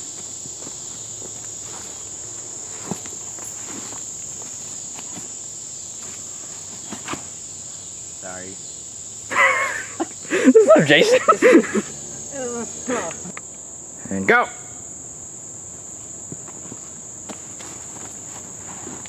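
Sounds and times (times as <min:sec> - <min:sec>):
footsteps on leaf litter: 0:00.0 - 0:05.4, 0:16.4 - 0:19.0
high-pitched insect chorus: 0:00.0 - 0:19.0.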